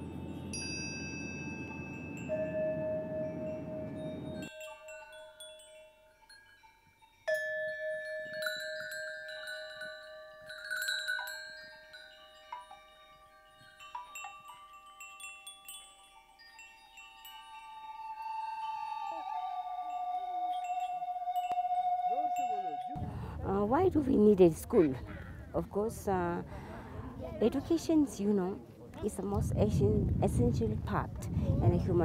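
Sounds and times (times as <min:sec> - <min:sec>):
ringing chime notes: 0:00.0 - 0:23.0.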